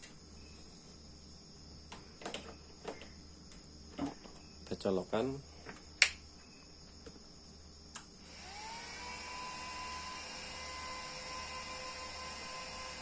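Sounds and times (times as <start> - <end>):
cooling fans whirring: 7.8 - 13.0.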